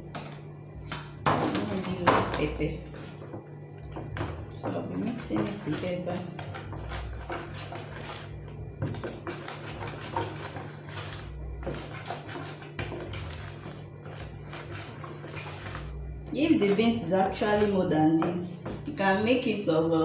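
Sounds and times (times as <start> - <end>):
spoon stirring batter in plastic bowl: 0.0 - 19.6.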